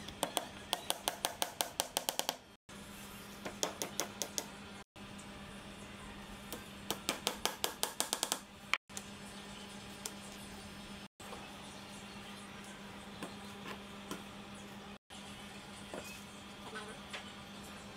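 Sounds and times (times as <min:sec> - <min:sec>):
hammer tapping wooden dowels: 0:00.2 - 0:02.4, 0:07.0 - 0:08.4.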